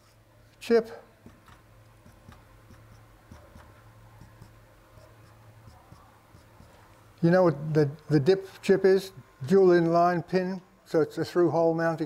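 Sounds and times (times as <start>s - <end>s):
low room hum: 0.0s - 12.0s
marker scratching on whiteboard: 2.0s - 6.9s.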